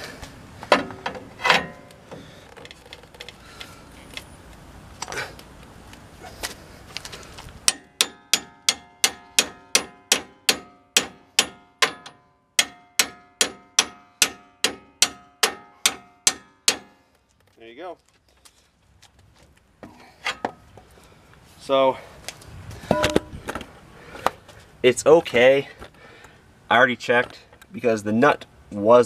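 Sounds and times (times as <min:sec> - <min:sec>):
hammer striking metal: 0:07.7 - 0:17.0, 0:22.9 - 0:23.3.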